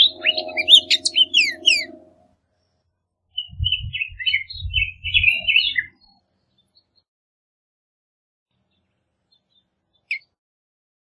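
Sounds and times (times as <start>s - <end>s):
bird whistling song: 0.0s - 2.1s, 3.3s - 6.2s, 10.1s - 10.3s
scratchy bird notes: 0.0s - 2.3s
low steady hum: 0.0s - 2.4s.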